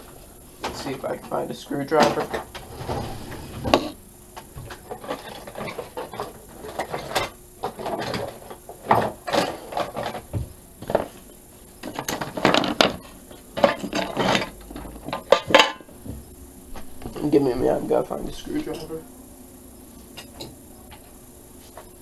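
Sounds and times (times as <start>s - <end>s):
drawer sounds: 2.0s - 4.0s
objects knocking and clattering: 2.0s - 11.2s, 11.8s - 16.3s.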